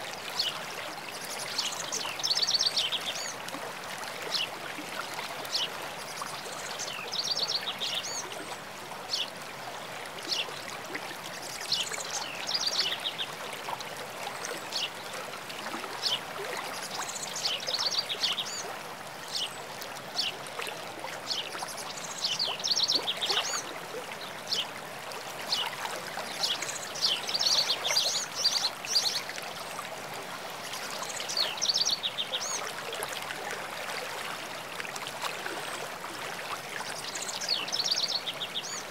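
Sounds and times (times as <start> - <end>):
running water rushing: 0.0 - 38.9
songbirds singing: 0.3 - 3.4, 5.4 - 9.4, 11.3 - 13.4, 21.2 - 24.8, 25.5 - 29.7, 30.6 - 32.7, 36.9 - 38.9.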